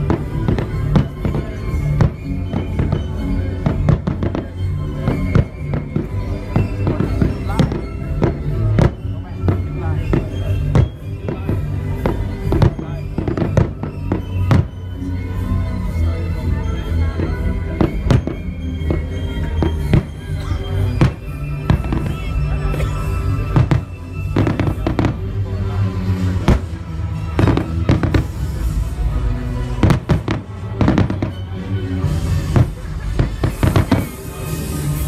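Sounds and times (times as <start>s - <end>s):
fireworks bursting: 0.0s - 15.4s, 17.0s - 35.0s
background music: 0.0s - 35.0s.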